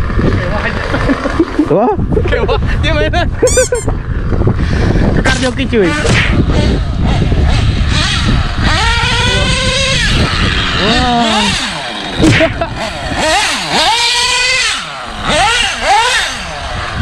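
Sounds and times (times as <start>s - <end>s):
model car engine revving: 5.8s - 17.0s.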